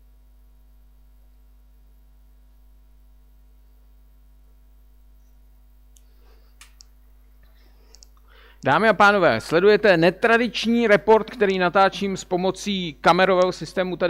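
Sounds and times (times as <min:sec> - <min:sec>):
low electrical hum: 0:00.0 - 0:14.0
faint clicks: 0:07.9 - 0:08.3.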